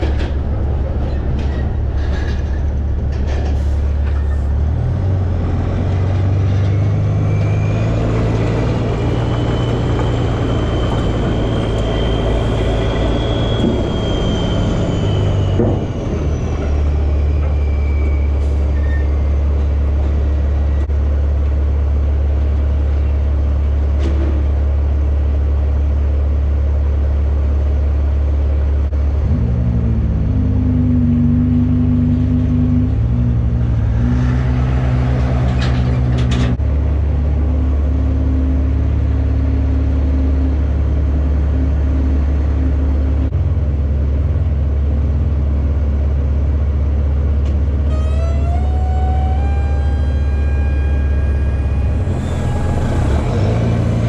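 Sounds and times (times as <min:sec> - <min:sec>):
diesel truck engine rumbling: 0:00.0 - 0:54.0
rising whine: 0:04.1 - 0:19.1, 0:47.8 - 0:54.0
pitched engine note: 0:47.8 - 0:54.0.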